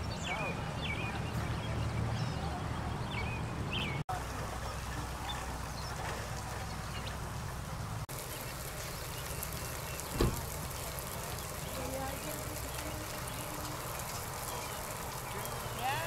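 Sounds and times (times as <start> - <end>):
birds chirping: 0.0 - 16.0
water spraying from pipe: 4.1 - 16.0.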